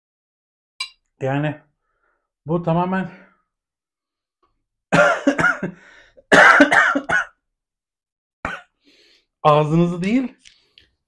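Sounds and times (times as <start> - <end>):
man coughing: 4.9 - 7.4, 8.4 - 8.8.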